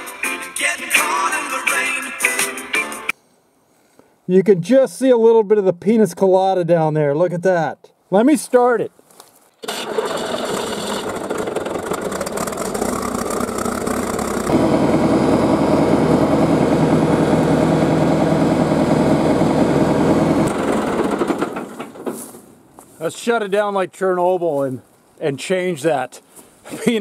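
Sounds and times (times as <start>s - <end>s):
bulldozer diesel engine running: 9.6s - 22.2s.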